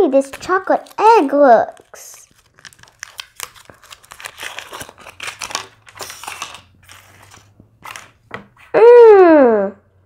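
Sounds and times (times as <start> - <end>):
foil wrapper crinkling: 0.2 - 8.2.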